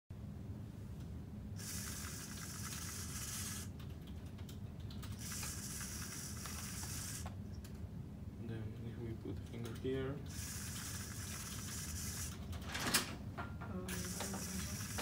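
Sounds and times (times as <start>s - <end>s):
small motors whirring: 1.6s - 3.7s, 5.1s - 7.4s, 10.3s - 12.5s, 13.9s - 15.0s.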